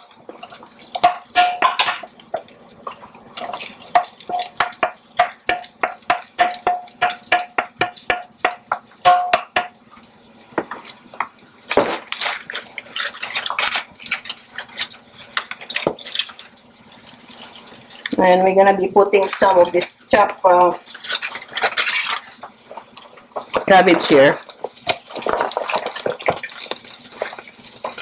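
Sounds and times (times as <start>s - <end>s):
wooden spoon knocking on plastic: 4.0s - 9.8s.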